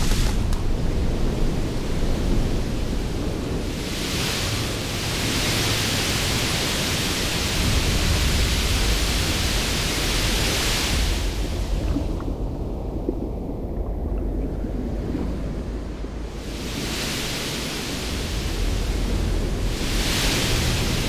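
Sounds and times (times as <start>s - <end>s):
ocean wave breaking: 0.0s - 21.0s
hissing rush of spray: 16.4s - 21.0s.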